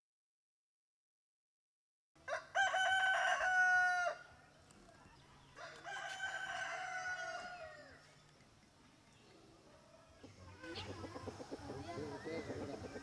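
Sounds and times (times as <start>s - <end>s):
rooster crowing: 2.2s - 4.3s, 5.6s - 8.0s.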